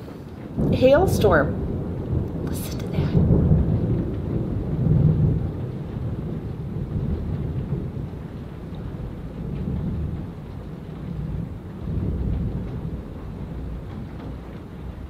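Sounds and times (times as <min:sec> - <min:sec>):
rolling thunder rumbling: 0:00.0 - 0:15.0
steady rain: 0:00.0 - 0:15.0.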